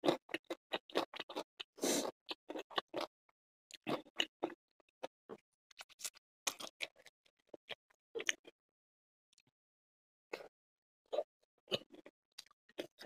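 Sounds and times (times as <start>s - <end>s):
chewing with wet mouth clicks: 0.0s - 3.1s, 3.7s - 8.6s, 11.1s - 13.0s.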